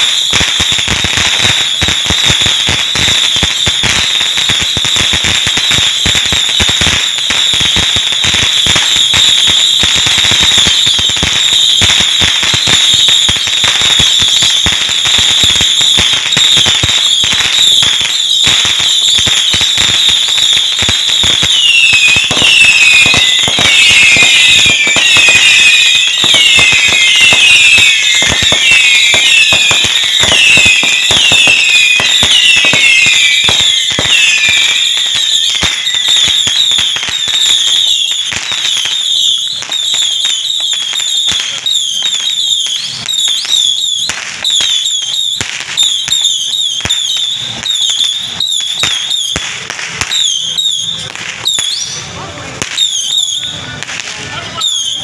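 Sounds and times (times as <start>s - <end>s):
firecrackers cracking: 0.0s - 55.0s
high falling whistles: 15.3s - 49.4s.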